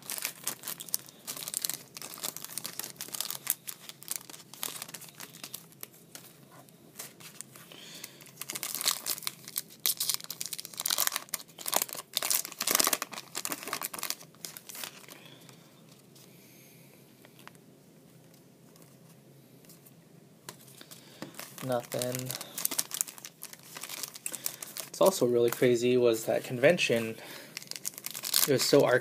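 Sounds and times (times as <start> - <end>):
foil wrapper crinkling and tearing: 0.0 - 6.4, 7.0 - 15.6, 20.7 - 25.8, 26.9 - 29.0.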